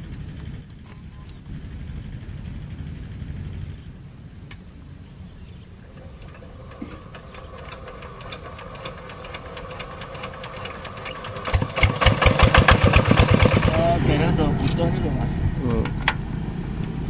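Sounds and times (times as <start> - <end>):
engine crank ticking: 5.9 - 15.1
diesel engine knocking: 5.9 - 16.3.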